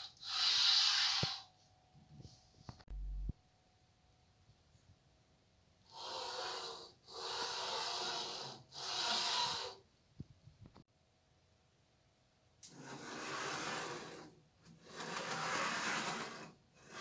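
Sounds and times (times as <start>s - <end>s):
carriage rasping along metal rail: 12.7s - 17.0s.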